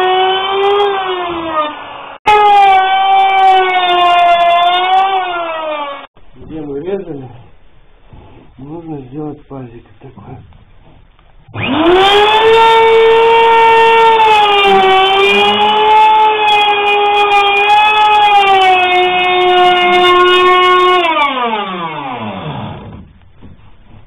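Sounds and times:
electric router whining: 11.5 - 23.0.

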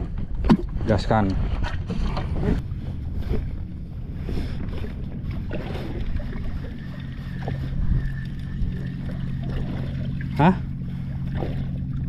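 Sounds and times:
outboard motor running: 0.0 - 12.0
water washing past hull: 0.0 - 12.0.

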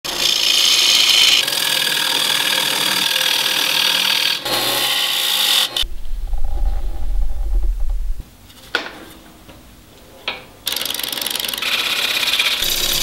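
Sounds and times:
wood lathe cutting hiss: 0.1 - 5.8, 11.5 - 13.0
low rumble: 5.8 - 8.4.

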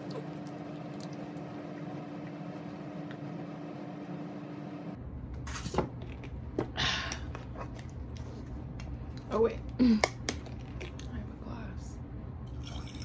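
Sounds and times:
room hum: 0.0 - 13.0.

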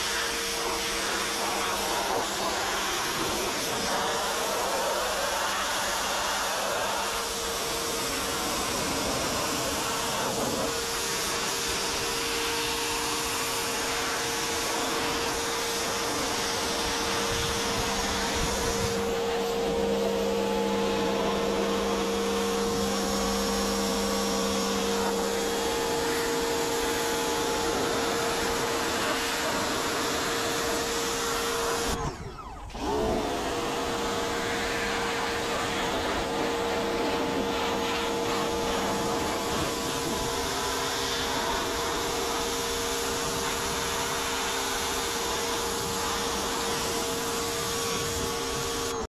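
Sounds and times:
hiss of water spray: 0.0 - 20.2
pressure washer motor whining: 0.0 - 49.0.

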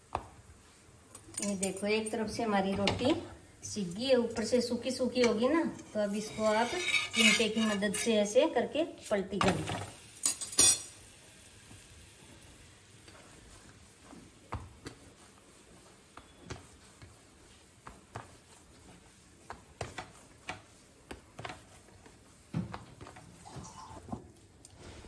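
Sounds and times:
metal tongs clinking on iron pan: 1.1 - 2.2, 10.2 - 11.0
hands kneading dough in steel plate: 13.1 - 24.4.

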